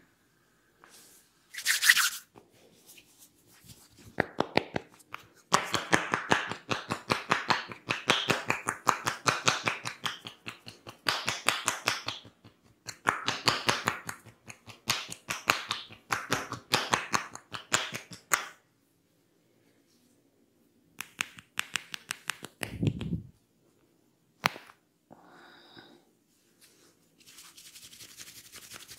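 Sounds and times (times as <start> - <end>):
hands tapping on skin: 4.2 - 18.6, 21.0 - 23.3.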